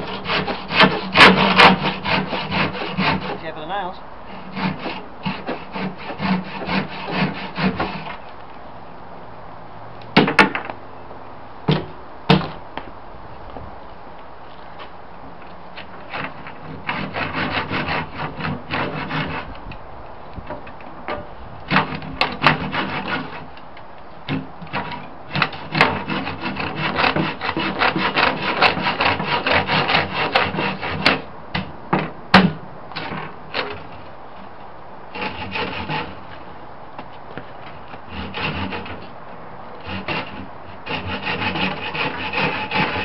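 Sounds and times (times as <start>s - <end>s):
handsaw cutting wood: 0.0s - 8.2s, 16.0s - 19.6s, 21.7s - 23.5s, 24.3s - 31.3s, 33.0s - 33.9s, 35.1s - 36.2s, 38.1s - 39.1s, 39.8s - 43.0s
sharp knocks: 11.7s - 12.6s.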